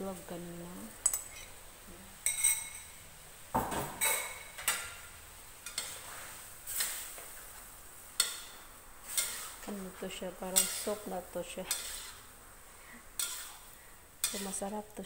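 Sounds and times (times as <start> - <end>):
wok ringing: 2.2 - 3.0, 8.2 - 12.3, 13.2 - 14.6
metal spatula scraping wok: 5.6 - 7.5, 8.2 - 14.8.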